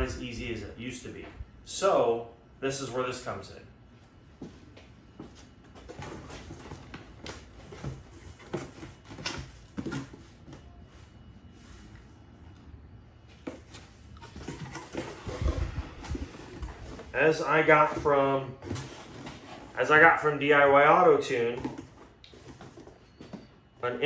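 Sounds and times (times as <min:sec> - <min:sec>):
packaging rustling and scraping: 0:05.8 - 0:11.9, 0:13.4 - 0:24.0.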